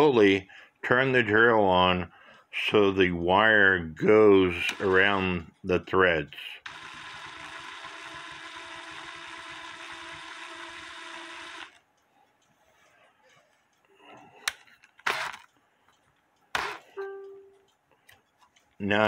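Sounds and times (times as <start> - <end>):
cordless drill whining: 6.7 - 11.8, 15.0 - 15.5.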